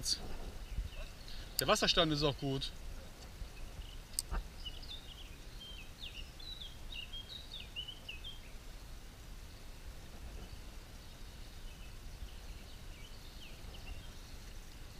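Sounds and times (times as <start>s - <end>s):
songbird twittering: 0.0s - 14.9s.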